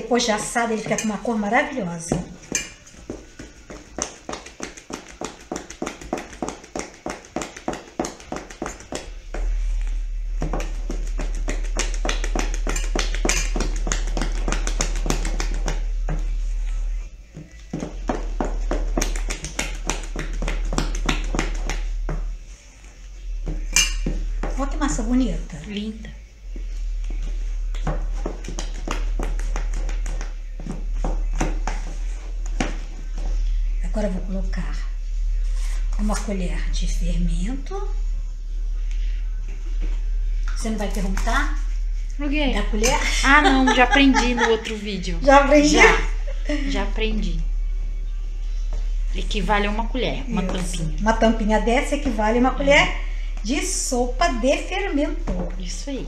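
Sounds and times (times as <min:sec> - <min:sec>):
steady low hum: 0:00.0 - 0:56.0
spoon beating batter in metal bowl: 0:02.1 - 0:22.4, 0:23.2 - 0:25.1, 0:26.5 - 0:33.8
spoon knocking and scraping bowl: 0:10.4 - 0:16.3.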